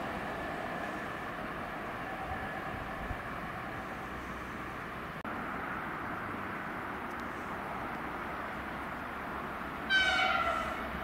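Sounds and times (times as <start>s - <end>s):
distant train rumble: 0.0s - 11.0s
train horn blast: 9.9s - 10.8s.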